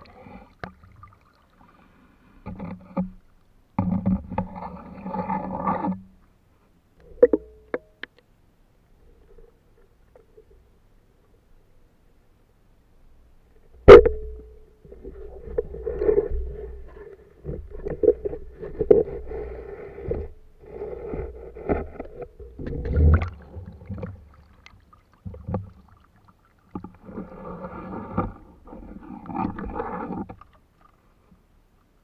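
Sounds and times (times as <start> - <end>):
underwater water movement: 14.8 - 31.5.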